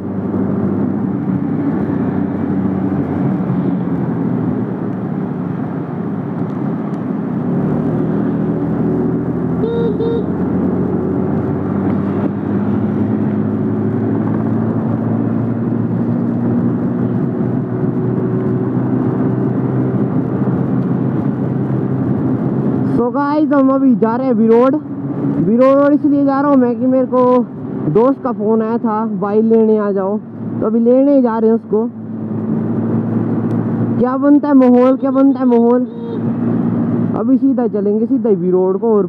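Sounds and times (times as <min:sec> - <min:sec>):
road and wind noise: 0:00.0 - 0:39.0
short high blips: 0:09.6 - 0:10.3.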